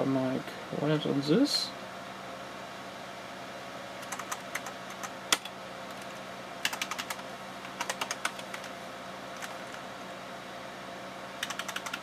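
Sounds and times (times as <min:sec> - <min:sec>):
computer keyboard typing: 0:04.0 - 0:08.8, 0:09.4 - 0:09.8, 0:11.4 - 0:12.0.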